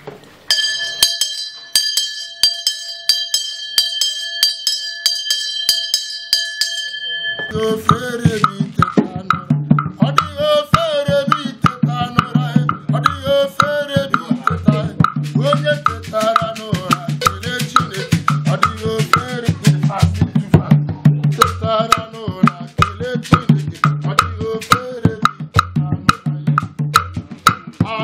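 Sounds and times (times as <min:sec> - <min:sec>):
metal bell ringing: 0:00.5 - 0:08.0
singing with drums: 0:02.7 - 0:28.0.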